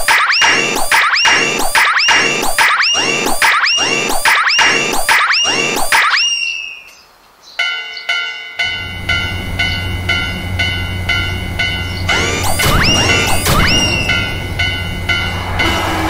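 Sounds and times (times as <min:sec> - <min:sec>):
level crossing warning bell: 0:07.6 - 0:16.0
passing train rumble: 0:08.4 - 0:16.0
trains whooshing by: 0:08.6 - 0:16.0.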